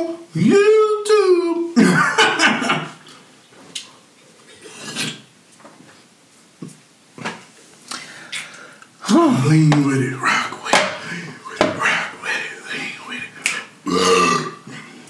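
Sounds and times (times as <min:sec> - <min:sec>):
man swallowing: 0:13.4 - 0:14.9.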